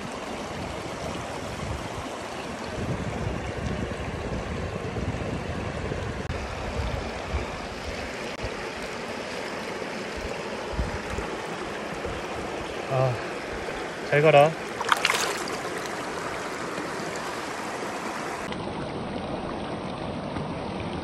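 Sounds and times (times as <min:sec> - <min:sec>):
stream rushing over rocks: 0:06.6 - 0:19.8.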